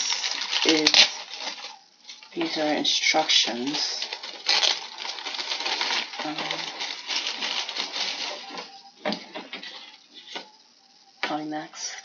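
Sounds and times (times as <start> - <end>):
paper rustling and crinkling: 0.0 - 10.5.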